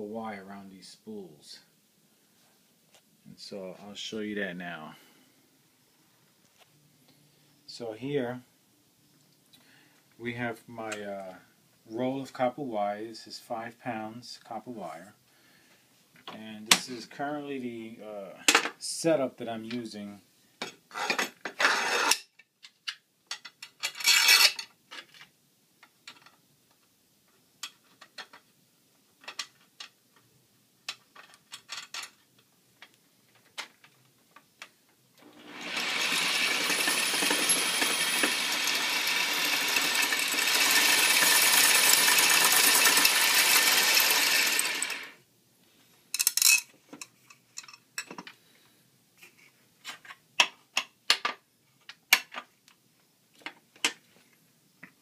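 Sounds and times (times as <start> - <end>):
metal washers and nuts clinking: 23.3 - 25.1, 35.7 - 45.0, 46.1 - 48.4
power drill running: 35.2 - 45.2.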